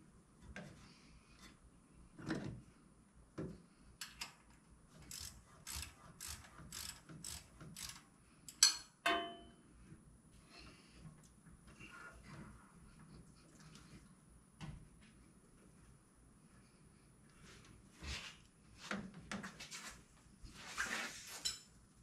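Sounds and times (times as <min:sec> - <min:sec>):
ratchet wrench ratcheting: 0:05.0 - 0:08.0
metal clank with ring: 0:08.6 - 0:09.6.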